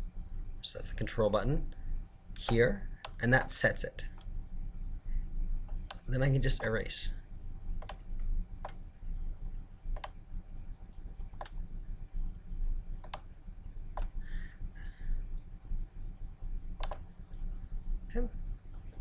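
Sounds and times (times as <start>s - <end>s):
low steady hum: 0.0s - 19.0s
mouse and keyboard clicks: 13.0s - 13.2s, 16.8s - 17.0s.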